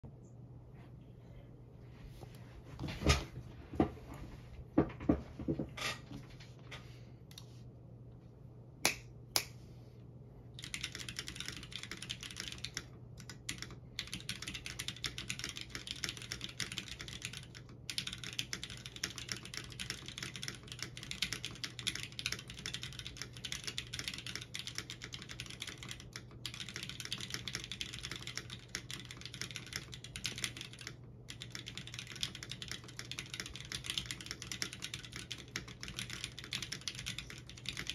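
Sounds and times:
mechanical keyboard typing: 10.6s - 37.9s.

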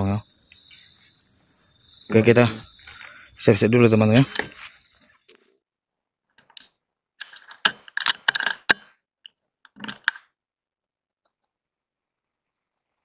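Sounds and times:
rifle clicking and ratcheting: 6.4s - 8.9s.

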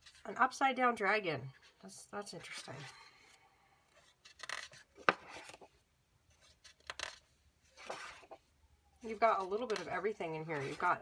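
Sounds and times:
book pages turning: 3.9s - 11.0s.

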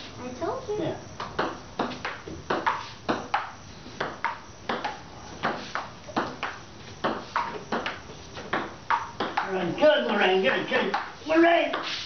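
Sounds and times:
ping-pong ball clicking: 1.3s - 9.6s.

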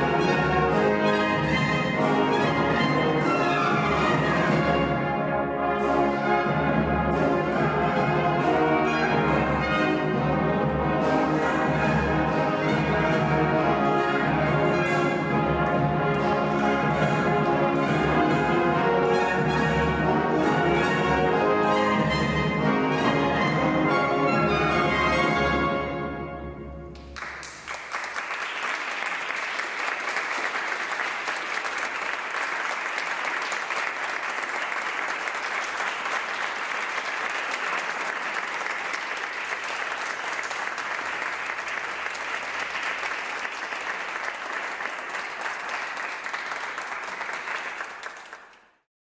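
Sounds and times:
brass ensemble chord: 0.0s - 27.2s
audience applauding: 27.0s - 48.8s.

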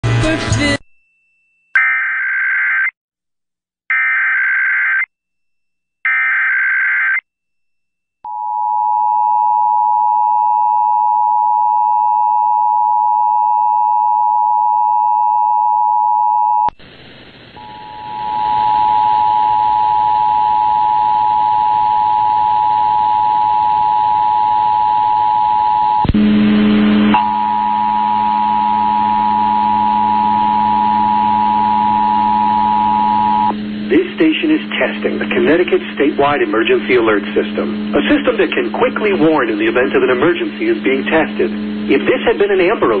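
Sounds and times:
low hum: 17.6s - 43.0s.

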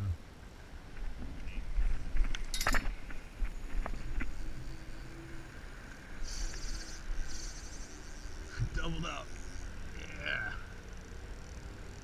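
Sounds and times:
high rapid buzz: 6.2s - 11.5s.

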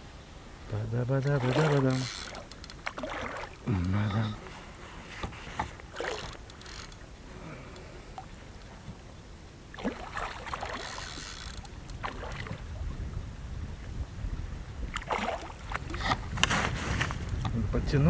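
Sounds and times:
fish splashing in water: 1.3s - 3.8s, 5.8s - 7.0s, 9.7s - 12.8s, 14.9s - 16.8s.

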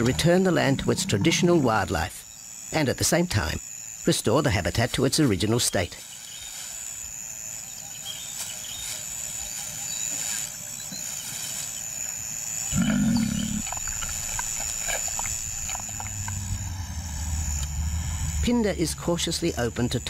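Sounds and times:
lion growling: 0.0s - 1.8s, 12.7s - 13.9s.

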